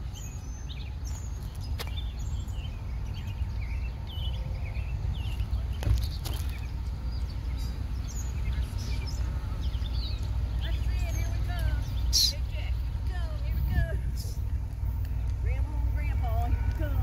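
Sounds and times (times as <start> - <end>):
small birds chirping: 0.0 - 17.0
steady low rumble: 0.0 - 17.0.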